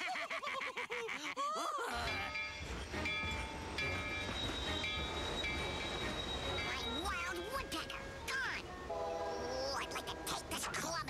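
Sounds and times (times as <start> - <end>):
steam train chugging rumble: 2.0 - 11.0
cartoon character voice: 9.3 - 11.0.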